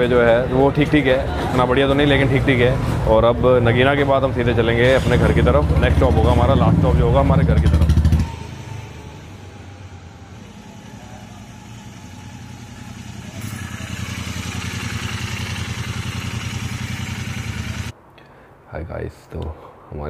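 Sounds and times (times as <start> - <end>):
motorcycle engine running: 5.3 - 17.9.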